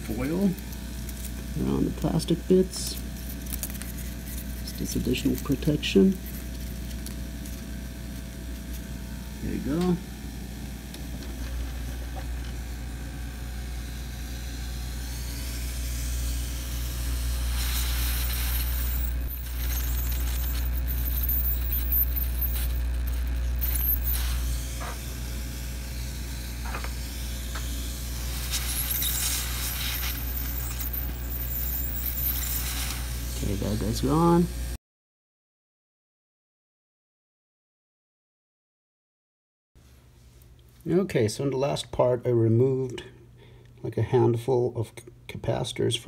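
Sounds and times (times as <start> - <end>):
hot air blower rushing: 11.0 - 34.4.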